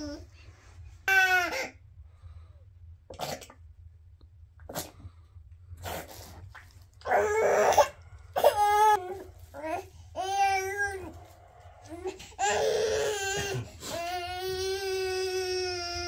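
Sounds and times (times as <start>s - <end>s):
baby coughing and fussing: 1.1s - 1.8s, 12.4s - 14.2s
baby crying: 12.0s - 16.0s.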